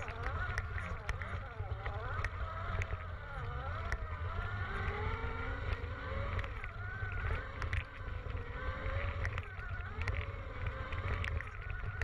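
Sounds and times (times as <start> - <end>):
electric motor whining: 0.0 - 12.0
wind rumble on microphone: 0.0 - 12.0.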